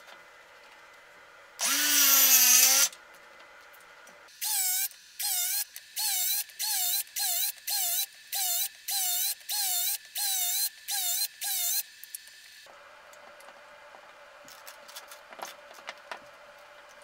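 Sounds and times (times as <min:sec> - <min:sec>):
circular saw cutting plywood: 0:01.6 - 0:02.9.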